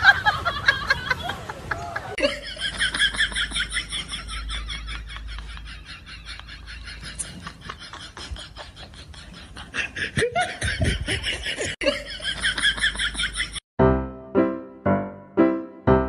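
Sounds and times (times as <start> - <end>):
laughter: 0.0 - 13.6.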